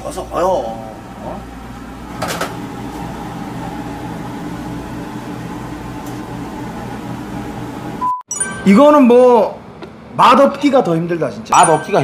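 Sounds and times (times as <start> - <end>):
kitchen equipment humming: 0.0 - 8.8.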